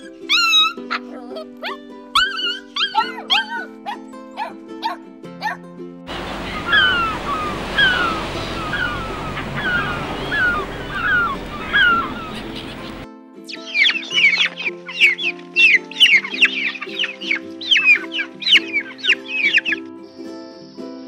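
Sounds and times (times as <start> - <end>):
puppy yipping and whining: 0.0 - 5.6, 9.6 - 12.7
soft background music: 0.0 - 21.0
sea surf: 6.1 - 13.1
terns and gulls calling: 6.1 - 20.9.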